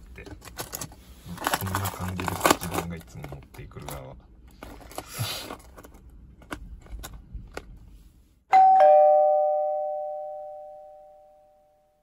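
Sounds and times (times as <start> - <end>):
two-note doorbell chime: 8.5 - 12.0.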